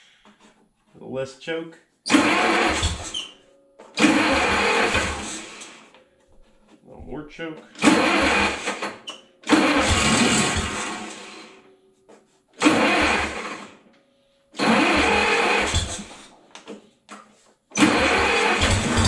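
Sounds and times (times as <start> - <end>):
gasoline engine cranking and sputtering: 2.1 - 3.2, 4.0 - 5.8, 7.7 - 11.6, 12.6 - 13.8, 14.6 - 16.3, 17.7 - 19.0.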